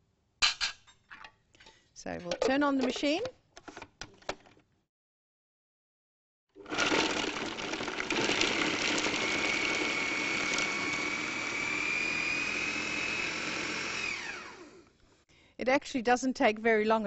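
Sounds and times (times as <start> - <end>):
food processor motor whine: 6.6 - 15.0.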